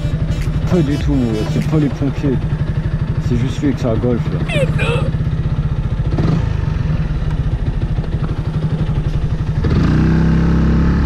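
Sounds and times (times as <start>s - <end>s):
motorcycle engine pulsing: 0.0s - 9.9s.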